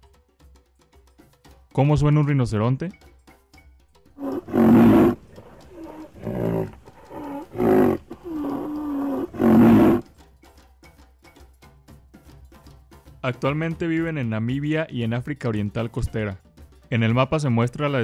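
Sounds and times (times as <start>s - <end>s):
rhinoceros breathy calls: 4.2s - 10.1s
rhinoceros whining calls: 4.2s - 10.1s.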